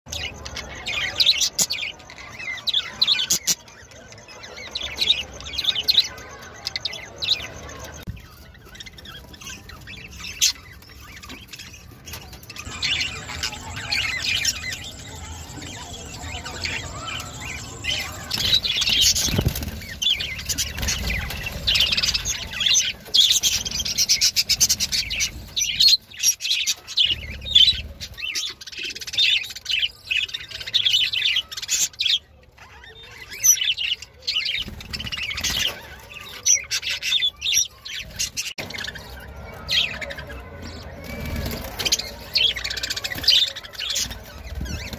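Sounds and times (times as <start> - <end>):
budgerigars chirping: 8.6 - 28.6.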